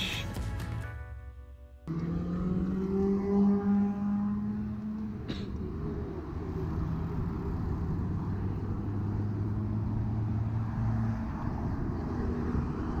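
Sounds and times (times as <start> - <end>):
low hum of road traffic: 1.8 - 13.0
wind rushing over microphone: 5.5 - 13.0.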